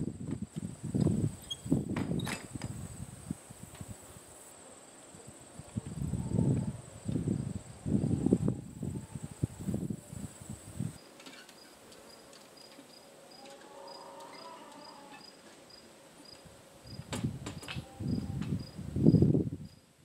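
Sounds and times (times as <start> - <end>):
crickets chirping: 0.0 - 20.0
knocks and thumps: 1.9 - 2.8.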